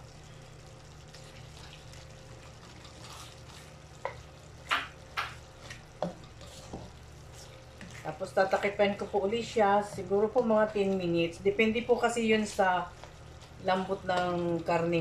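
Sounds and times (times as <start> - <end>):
spoon scraping a pan: 2.6 - 5.3, 6.0 - 9.2.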